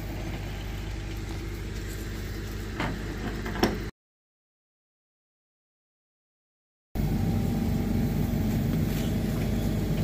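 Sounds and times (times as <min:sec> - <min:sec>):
truck engine running: 0:00.0 - 0:03.9, 0:07.0 - 0:10.0.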